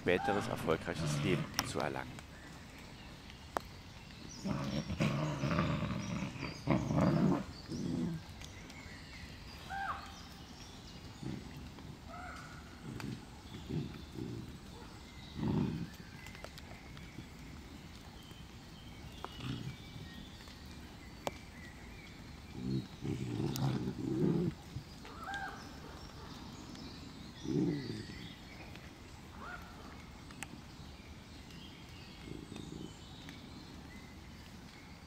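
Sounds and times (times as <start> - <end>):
faint birds chirping: 0.0 - 35.0
wolf pups growling: 0.2 - 2.2, 4.2 - 8.8, 11.0 - 17.5, 19.0 - 20.3, 22.3 - 29.6, 32.1 - 33.4.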